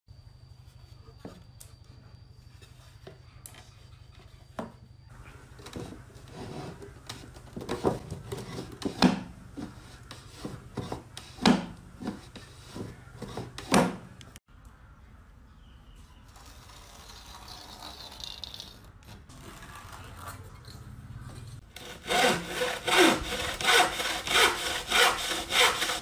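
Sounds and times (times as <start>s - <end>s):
wooden drawer sliding: 5.3s - 14.1s.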